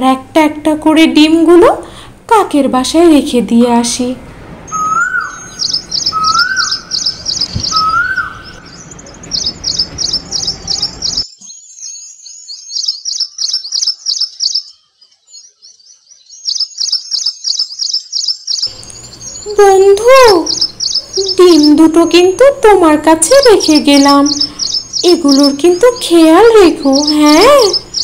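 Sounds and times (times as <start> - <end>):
background hiss: 0.0 - 11.2, 18.6 - 28.0
rising whistled notes: 4.7 - 10.8
small birds chirping: 4.7 - 28.0.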